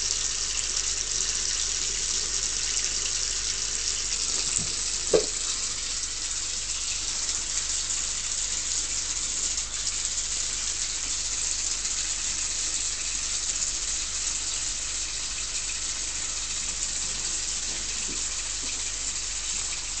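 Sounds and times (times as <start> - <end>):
tap water running into basin: 0.0 - 20.0
short knock: 5.1 - 5.4.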